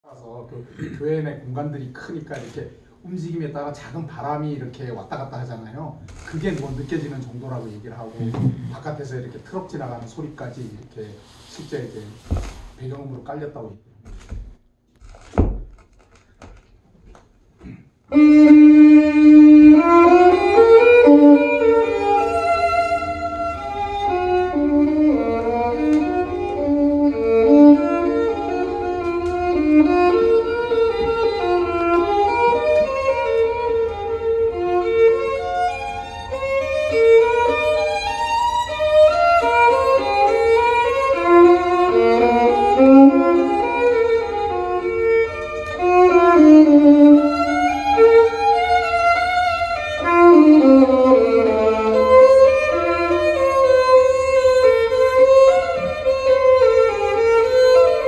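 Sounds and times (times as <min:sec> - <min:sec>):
violin music from a record: 0:18.1 - 0:58.0.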